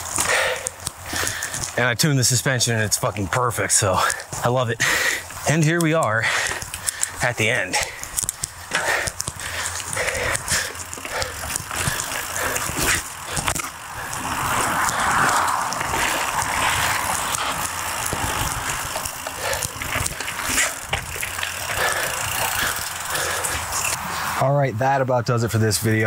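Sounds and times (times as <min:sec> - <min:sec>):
bike clicking and rattling: 0:00.0 - 0:24.4
bike tyres on dirt and leaves: 0:00.0 - 0:26.0
wind on microphone: 0:13.9 - 0:19.1.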